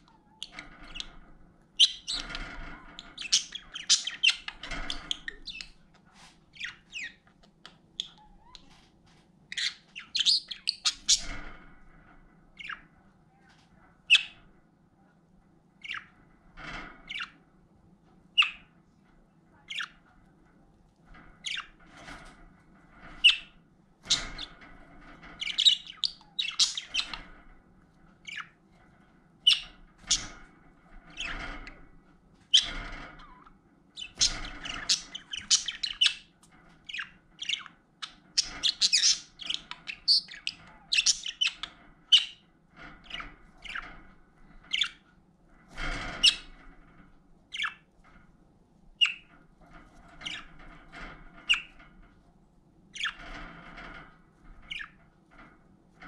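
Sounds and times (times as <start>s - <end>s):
budgerigars chirping: 1.8s - 5.8s, 9.5s - 11.5s, 18.4s - 18.6s, 25.4s - 27.3s, 29.5s - 30.4s, 32.6s - 36.3s, 36.9s - 42.4s, 44.7s - 45.0s, 46.1s - 46.5s, 47.5s - 47.8s, 49.0s - 49.3s, 51.5s - 51.8s, 53.0s - 53.2s, 54.7s - 55.0s.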